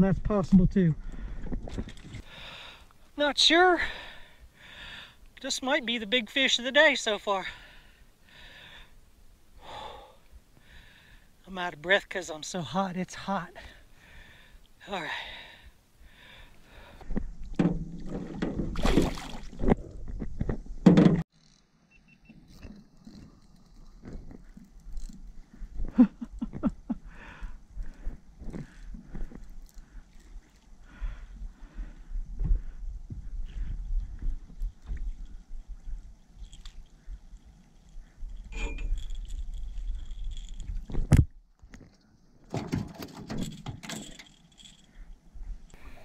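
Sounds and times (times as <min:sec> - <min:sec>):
water splash: 0:17.9 - 0:19.7
fishing reel and rod handling: 0:22.4 - 0:25.8, 0:28.7 - 0:30.7, 0:36.2 - 0:42.0, 0:43.3 - 0:45.9.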